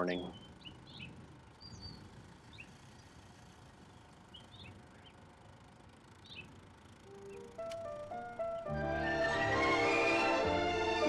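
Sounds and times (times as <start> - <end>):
low steady background noise: 0.0 - 9.0
bird chirps: 0.1 - 5.4, 6.2 - 7.6.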